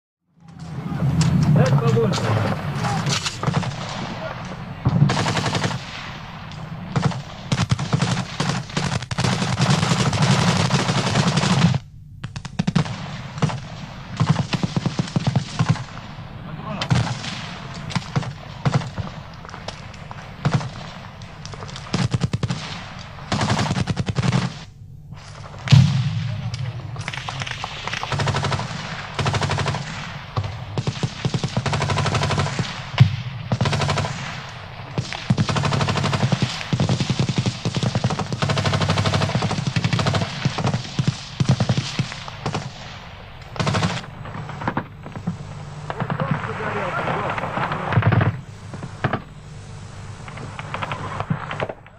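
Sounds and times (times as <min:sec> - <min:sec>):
automatic gunfire: 0:01.9 - 0:06.3, 0:06.9 - 0:24.7, 0:25.3 - 0:42.9, 0:43.5 - 0:48.4
machine-gun fire bursts: 0:01.9 - 0:49.3, 0:50.3 - 0:51.9
single gunshots: 0:06.9 - 0:21.0, 0:25.4 - 0:38.4
single loud gunshot: 0:25.7 - 0:27.7.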